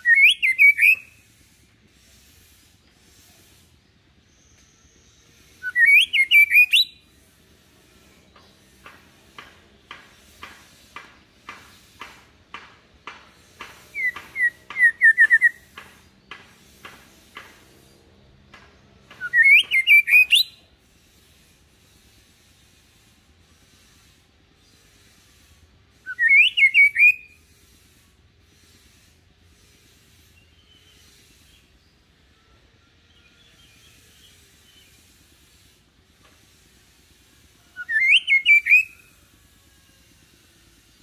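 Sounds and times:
falling whistled bird notes: 5.6s - 7.0s, 26.1s - 27.3s
bird dry ticks: 8.3s - 17.9s.

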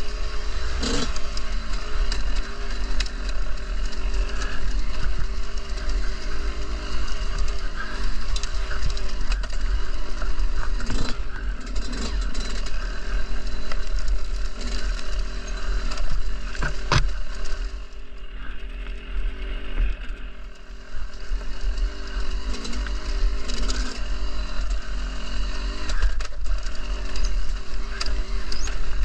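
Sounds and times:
dirt bike engine revving: 0.0s - 29.0s.

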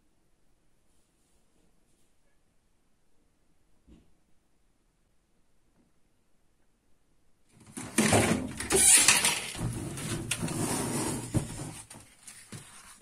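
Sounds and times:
cupboard doors scraping: 7.6s - 13.0s.

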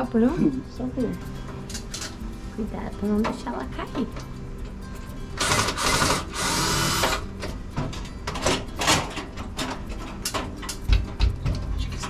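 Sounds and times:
cordless drill running: 5.4s - 7.2s.

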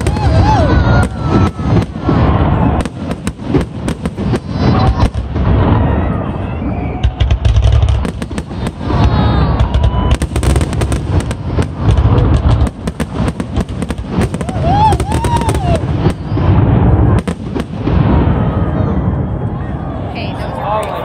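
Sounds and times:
fireworks whistling: 0.0s - 19.4s
fireworks bangs and crackling: 0.0s - 20.6s
low rumble: 15.6s - 20.5s.

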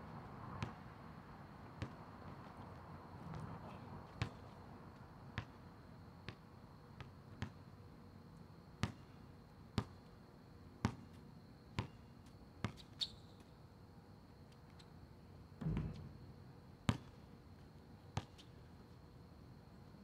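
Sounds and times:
basketball bouncing on asphalt: 0.6s - 0.9s, 1.8s - 2.7s, 4.1s - 4.6s, 5.4s - 5.6s, 6.3s - 7.7s, 8.8s - 9.2s, 9.8s - 10.0s, 10.8s - 13.0s, 15.6s - 16.3s, 16.9s - 17.2s, 18.2s - 18.5s.

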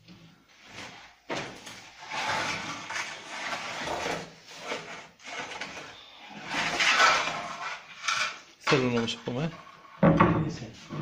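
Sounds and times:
peel scraping on brick floor: 1.9s - 9.0s.

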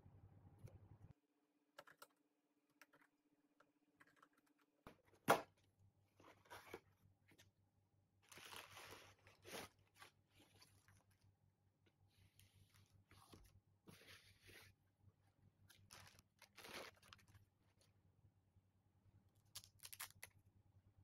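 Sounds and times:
bubble wrap crinkling: 8.2s - 11.2s, 15.7s - 17.5s, 19.5s - 20.4s
cardboard and tape rustling: 8.2s - 11.2s, 15.7s - 17.4s.

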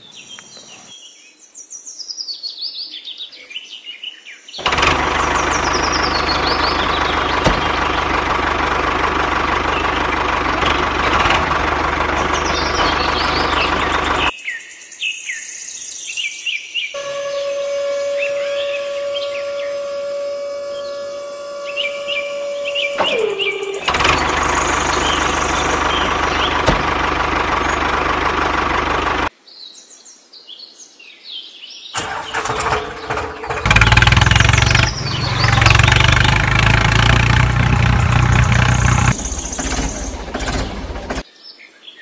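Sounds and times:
birds chirping: 0.0s - 3.8s, 4.6s - 14.6s, 17.0s - 29.7s, 31.9s - 41.7s
miniature tractor motor: 4.6s - 14.3s, 17.0s - 29.3s, 32.0s - 41.2s
small electric motor whine: 17.0s - 28.4s.

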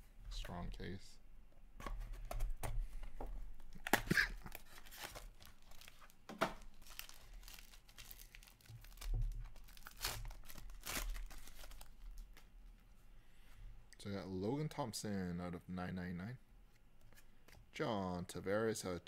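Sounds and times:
foil pack crinkling: 3.7s - 12.4s
plastic wrap tearing: 3.7s - 12.4s.

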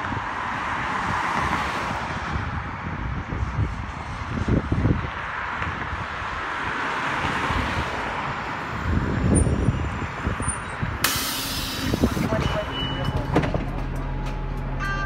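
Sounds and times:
bus engine and tyre noise: 0.0s - 15.0s
compressed air hiss: 11.0s - 12.3s.

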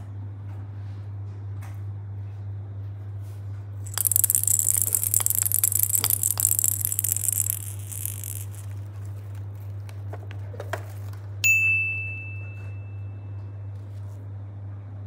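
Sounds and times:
plastic rattle toy shaken: 3.9s - 8.8s.

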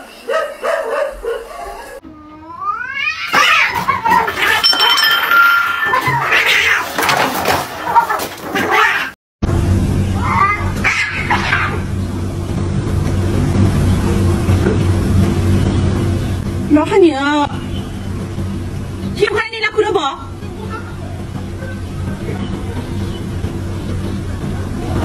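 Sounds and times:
cats yowling and screeching: 1.6s - 4.7s, 5.3s - 7.2s, 7.8s - 9.2s, 10.2s - 11.9s
steady low hum: 9.4s - 25.0s.

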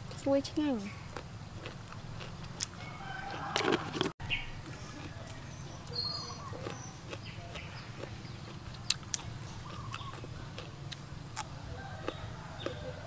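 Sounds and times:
faint bird chirps: 5.2s - 8.0s.

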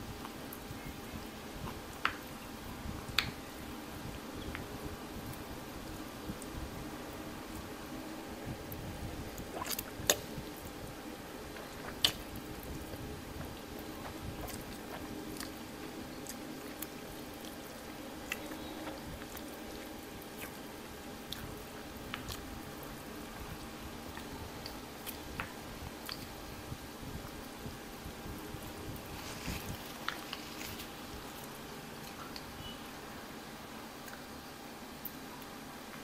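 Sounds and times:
electric fan hum: 0.0s - 36.0s
mouth clicks and smacks: 11.5s - 12.3s, 20.3s - 20.6s, 24.1s - 26.4s.

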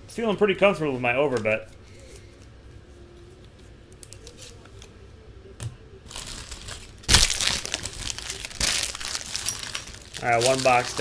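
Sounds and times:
packaging crinkling: 6.1s - 11.0s.

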